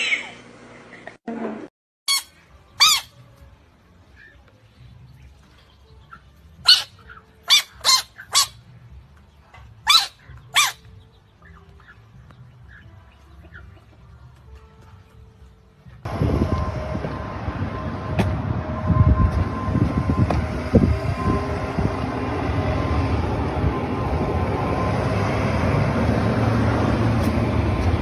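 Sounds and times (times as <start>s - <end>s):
high-pitched animal yelps: 2.1s - 3.2s, 6.6s - 8.6s, 9.8s - 10.9s.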